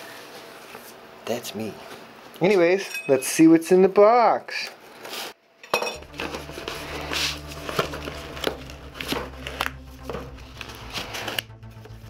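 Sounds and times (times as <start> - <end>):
cardboard and tape rustling: 6.0 - 12.0.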